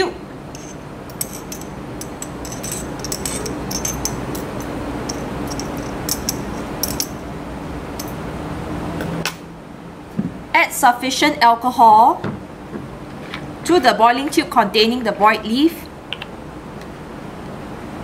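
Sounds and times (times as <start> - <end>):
room noise hiss and hum: 0.0 - 18.0.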